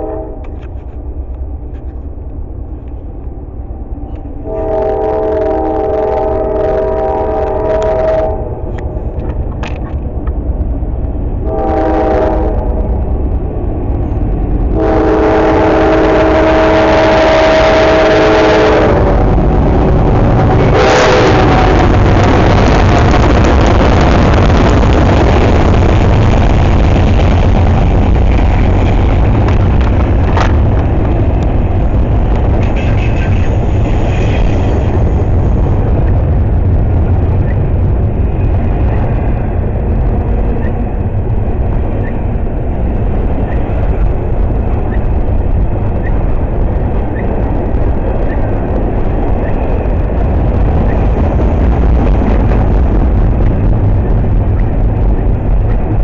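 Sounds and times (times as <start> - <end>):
freight train rumbling: 0.0 - 56.0.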